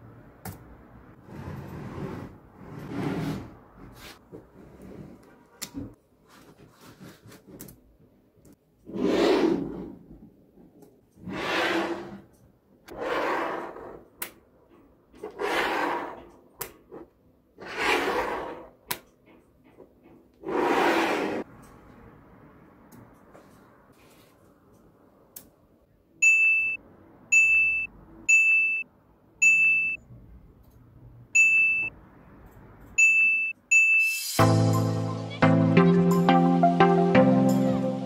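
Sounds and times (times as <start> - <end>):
magnet balls rubbing on table: 16.9 - 18.8, 20.4 - 21.5.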